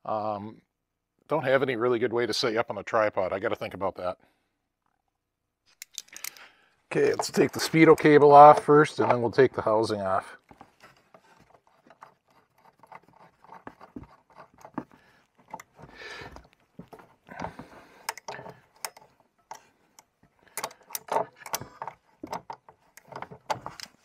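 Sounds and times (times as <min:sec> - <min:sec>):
small metal clicks and scrapes: 0:05.7 - 0:09.4, 0:10.3 - 0:24.0.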